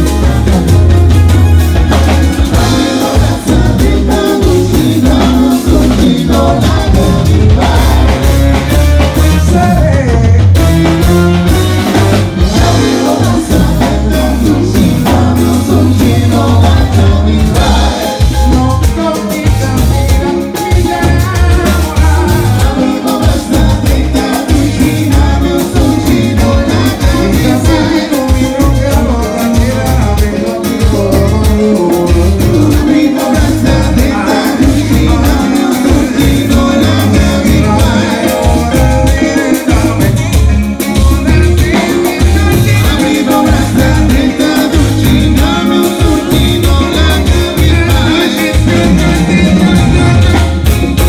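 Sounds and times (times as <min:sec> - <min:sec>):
live band playing: 0:00.0 - 0:51.0.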